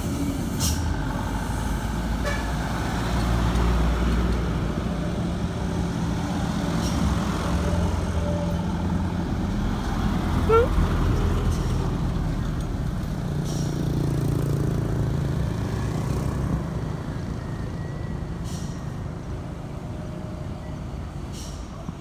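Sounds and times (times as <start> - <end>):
diesel truck engine passing: 0.0 - 22.0.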